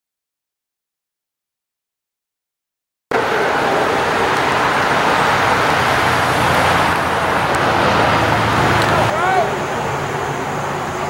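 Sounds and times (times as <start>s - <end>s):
car engine running: 3.1s - 11.0s
dense even noise: 3.1s - 11.0s.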